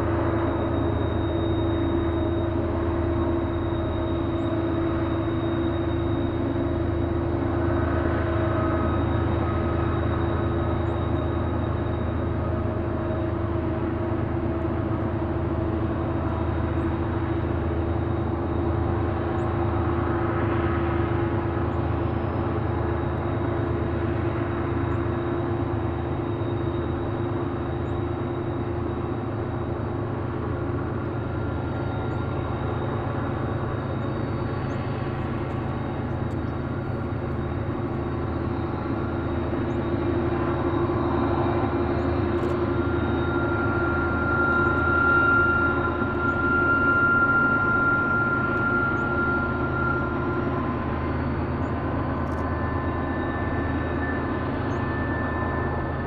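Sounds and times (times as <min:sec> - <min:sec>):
locomotive engine drone: 0:00.0 - 0:56.0.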